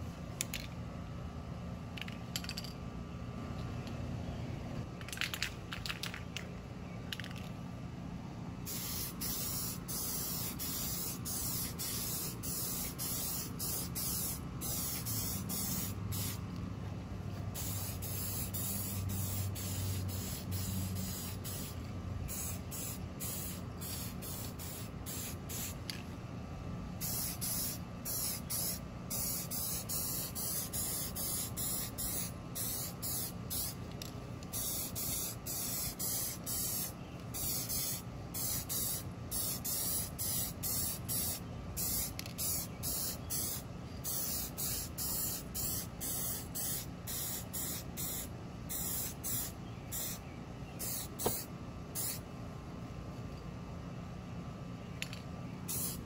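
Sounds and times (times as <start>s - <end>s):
spray can hissing in bursts: 8.7s - 16.4s, 17.6s - 25.8s, 27.0s - 33.8s, 34.5s - 50.2s, 50.8s - 52.2s, 55.7s - 56.0s.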